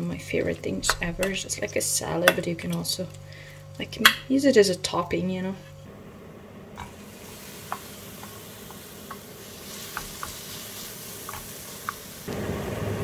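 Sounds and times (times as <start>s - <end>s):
meat sizzling in a frying pan: 6.8s - 13.0s.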